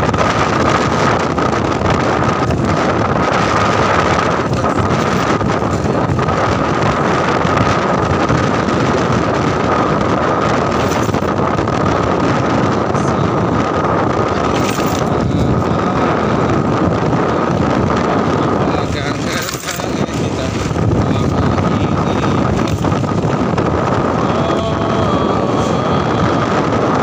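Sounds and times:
motorcycle engine running: 0.0 - 27.0
steady high whine: 0.0 - 27.0
wind buffeting microphone: 0.0 - 27.0.

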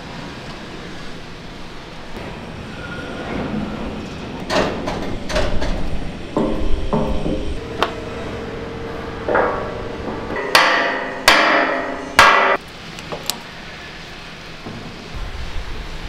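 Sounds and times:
hammer striking metal: 6.4 - 12.6.

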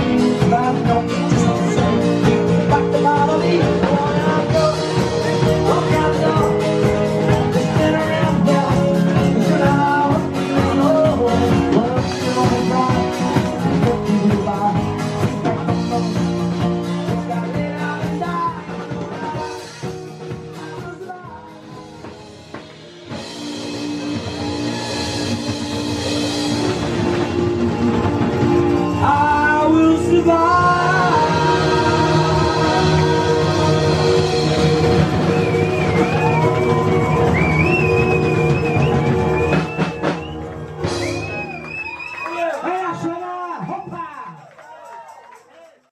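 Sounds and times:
man singing: 0.0 - 22.3, 28.9 - 35.1
rock band holding chord: 0.0 - 41.8
drum kit: 0.0 - 44.2
thin wavering whistle: 35.2 - 42.4.

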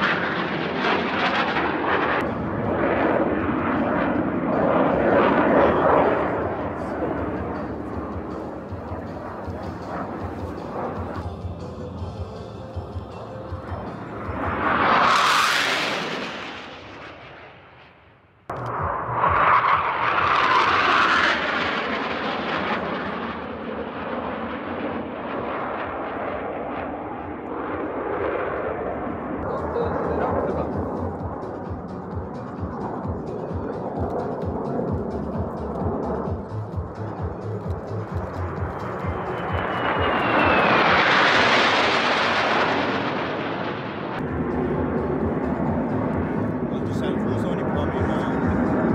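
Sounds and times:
jet flying past: 0.0 - 11.3, 13.4 - 48.9.

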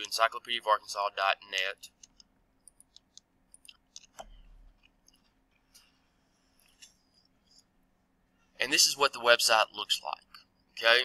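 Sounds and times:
computer clicks: 1.9 - 5.2.

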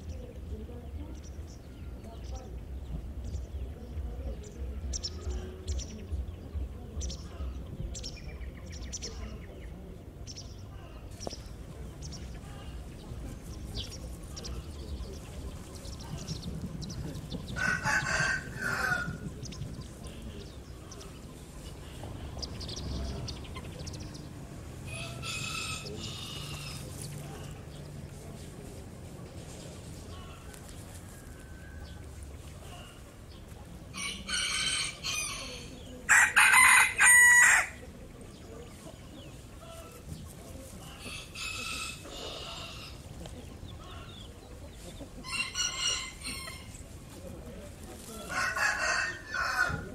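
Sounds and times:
rooster crowing: 17.6 - 19.2, 34.0 - 37.8, 45.2 - 46.7, 48.3 - 49.9.

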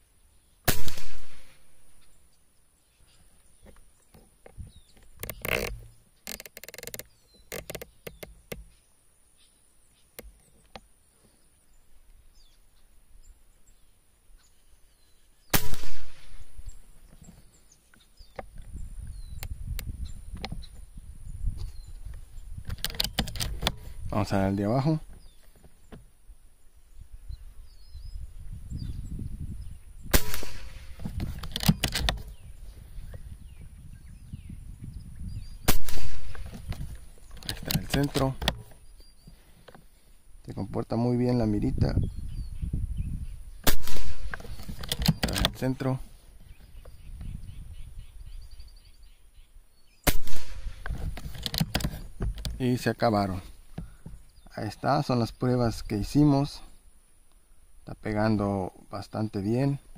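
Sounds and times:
air rifle shot: 0.7 - 1.8, 15.5 - 16.6, 30.1 - 31.0, 35.6 - 36.6, 43.6 - 44.6, 50.0 - 50.9
rifle handling clicks and rattle: 3.6 - 8.7, 21.6 - 23.9, 30.3 - 32.4, 35.9 - 38.8, 43.9 - 45.9, 50.7 - 52.8.

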